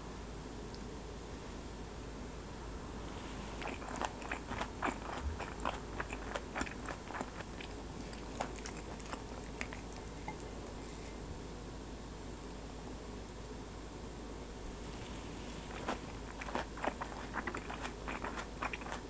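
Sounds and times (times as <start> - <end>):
crunchy chewing: 3.0 - 11.2, 14.9 - 19.0.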